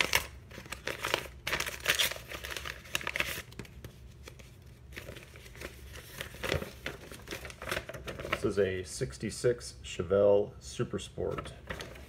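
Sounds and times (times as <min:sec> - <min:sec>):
paper envelope tearing: 0:00.0 - 0:03.7
paper crinkling and rustling: 0:00.0 - 0:08.7, 0:11.2 - 0:12.0.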